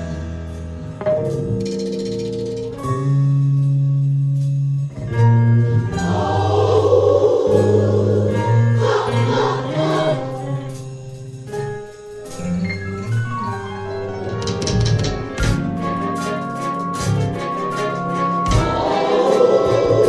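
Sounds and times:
held instrumental notes: 0.0 - 20.0
choir singing gospel: 5.7 - 10.8, 18.2 - 20.0.

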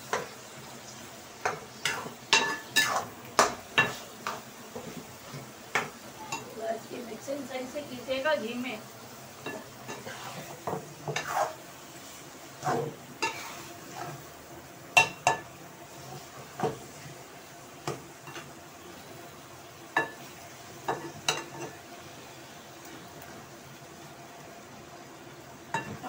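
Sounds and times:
meat sizzling: 0.0 - 26.0
metal spoon scraping a frying pan: 1.4 - 5.5, 9.4 - 14.2.

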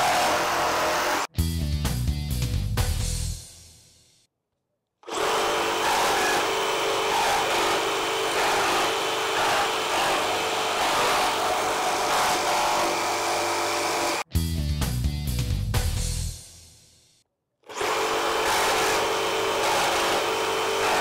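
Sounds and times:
reciprocating saw cutting wood: 0.0 - 1.3, 5.0 - 14.3, 17.7 - 21.0.

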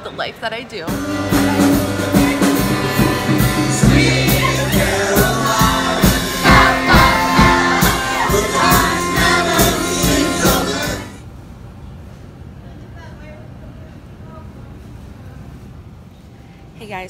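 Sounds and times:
drums: 0.8 - 11.2
electric guitar: 0.9 - 11.2.

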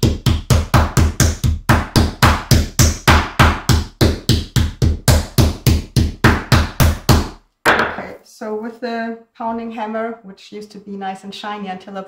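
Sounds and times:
meat mallet thudding on board: 0.0 - 8.0.

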